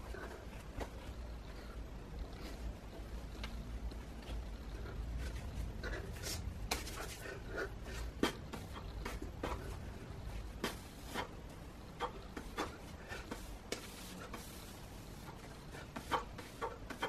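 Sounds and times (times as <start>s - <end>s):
low steady rumble: 0.0s - 12.4s.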